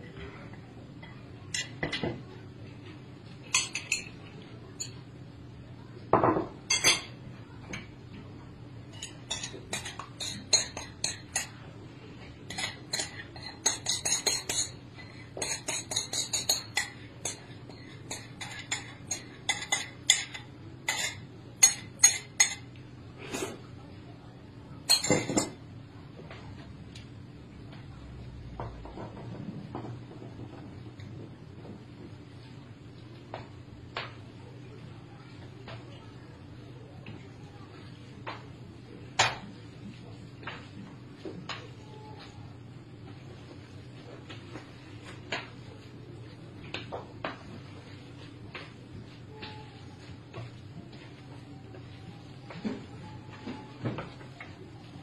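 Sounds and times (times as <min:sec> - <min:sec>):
ceramic bowls and plates clinking: 0:03.4 - 0:04.2, 0:06.2 - 0:07.9, 0:08.9 - 0:11.6, 0:12.4 - 0:22.8, 0:24.8 - 0:25.6
chopsticks knocking on bowls: 0:08.9 - 0:11.6.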